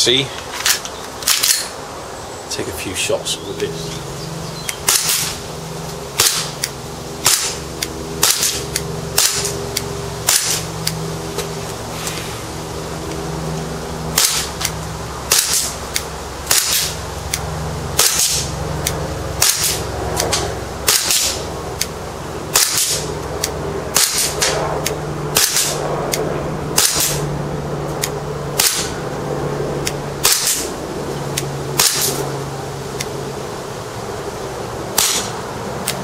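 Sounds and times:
airsoft pistol shots: 0:04.8 - 0:05.4, 0:06.2 - 0:06.6, 0:07.2 - 0:07.6, 0:08.2 - 0:09.6, 0:10.2 - 0:10.7, 0:14.2 - 0:14.6, 0:15.3 - 0:15.8, 0:16.5 - 0:17.0, 0:18.0 - 0:18.5, 0:19.4 - 0:21.4, 0:22.5 - 0:23.1, 0:23.9 - 0:24.6, 0:25.3 - 0:25.8, 0:26.8 - 0:27.2, 0:28.6 - 0:28.9, 0:30.2 - 0:30.7, 0:31.8 - 0:32.2, 0:35.0 - 0:35.4.

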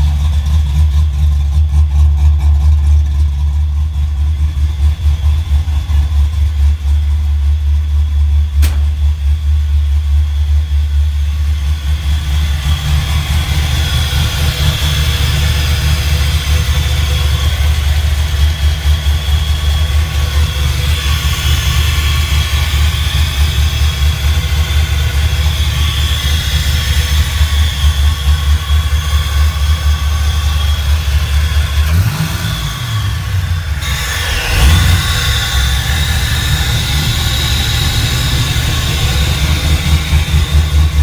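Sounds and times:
car engine idling unevenly: 0:00.0 - 0:41.0
engine whine and hiss: 0:07.9 - 0:41.0
sharp click: 0:08.6 - 0:09.0.

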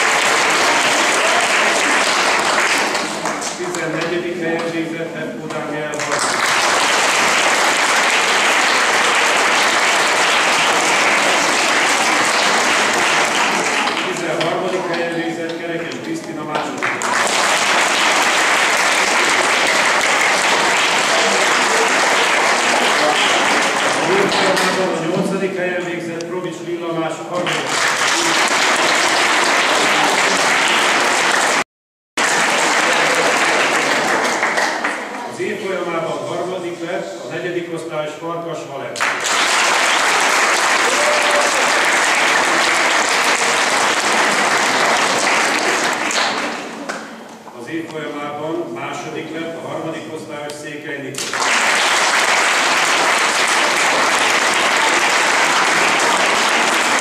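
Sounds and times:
audience applauding: 0:00.0 - 0:04.0, 0:05.9 - 0:15.0, 0:16.6 - 0:25.0, 0:27.4 - 0:35.3, 0:39.0 - 0:47.2, 0:51.2 - 0:57.0.

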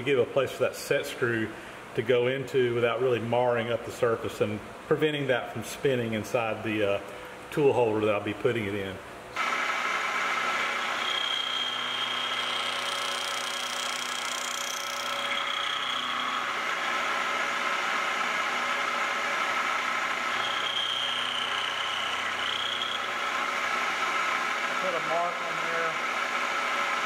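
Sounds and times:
milling machine running: 0:09.4 - 0:27.0
high thin cutting whine: 0:10.3 - 0:26.0.

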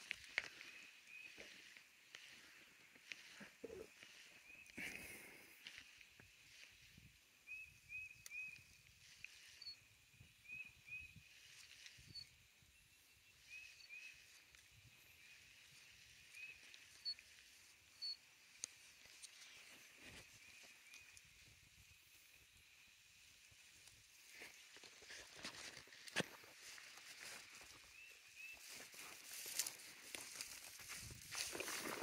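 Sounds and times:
short chirping calls: 0:00.6 - 0:05.2, 0:05.8 - 0:21.2.

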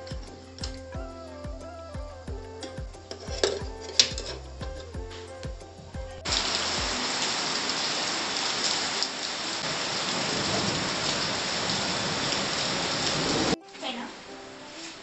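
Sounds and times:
music with bass beat: 0:00.0 - 0:07.2
heavy rain on concrete: 0:06.3 - 0:14.1.

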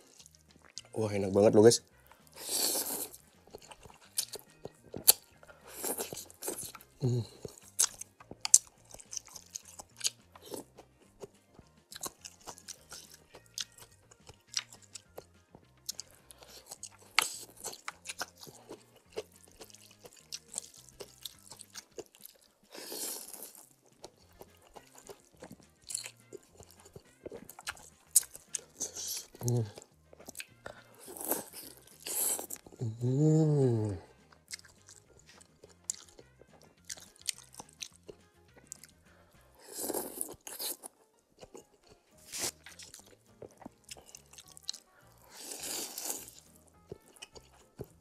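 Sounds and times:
wet chewing and lip-smacking: 0:00.0 - 0:01.0, 0:02.1 - 0:32.9, 0:34.0 - 0:48.0
faint background music: 0:00.0 - 0:48.0
slurping noodles: 0:02.3 - 0:03.2, 0:22.7 - 0:23.6, 0:45.3 - 0:46.5.

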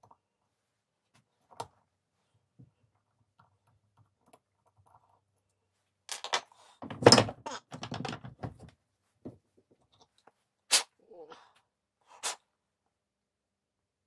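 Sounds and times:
hard objects clattering: 0:06.1 - 0:08.7.

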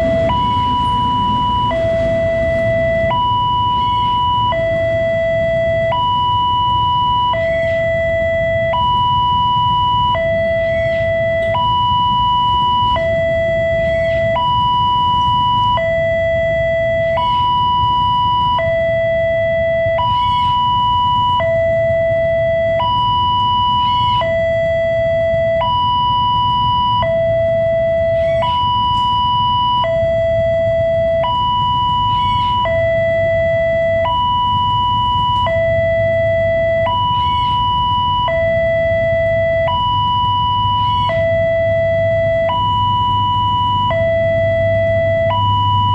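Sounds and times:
passing train rumbling: 0:00.0 - 0:05.8
two-tone level crossing alarm: 0:00.0 - 0:45.9.

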